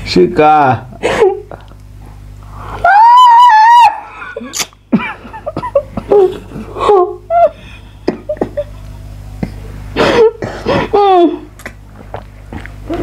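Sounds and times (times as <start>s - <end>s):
person moaning and squealing: 2.7s - 4.7s
gasps and laughter: 3.8s - 8.7s.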